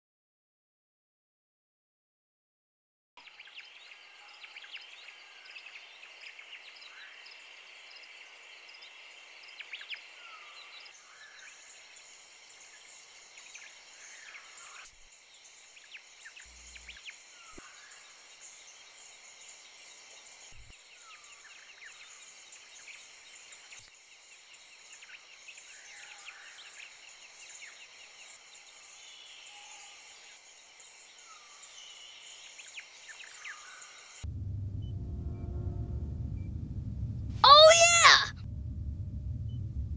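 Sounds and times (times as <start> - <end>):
high insect trill: 11.8 - 20.5.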